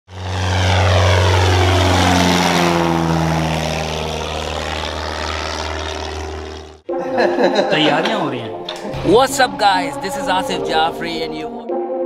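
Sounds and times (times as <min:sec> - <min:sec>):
propeller plane flying past: 0:00.1 - 0:06.9.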